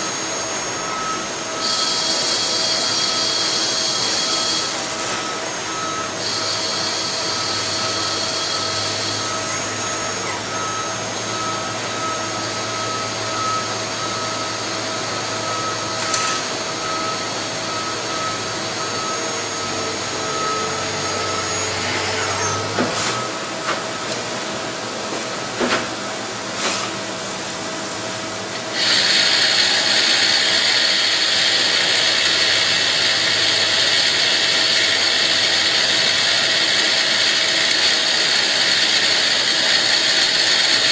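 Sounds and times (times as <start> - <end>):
lathe machine hum: 0.0 - 23.6, 27.3 - 40.9
high whine: 0.0 - 24.7.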